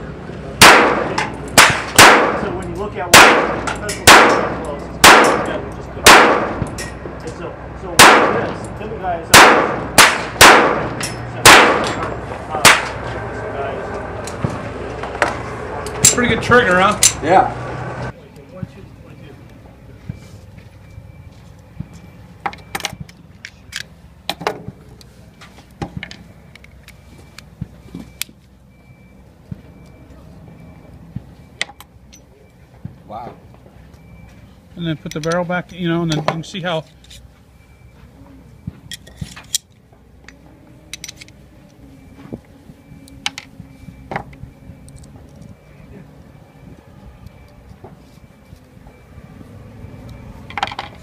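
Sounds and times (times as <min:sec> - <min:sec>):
metallic clicks and clinks: 0:06.6 - 0:07.4, 0:38.9 - 0:41.8
metallic clicks of pistol parts: 0:06.6 - 0:07.4, 0:22.5 - 0:25.1, 0:35.0 - 0:36.3, 0:38.9 - 0:41.8, 0:44.2 - 0:45.6.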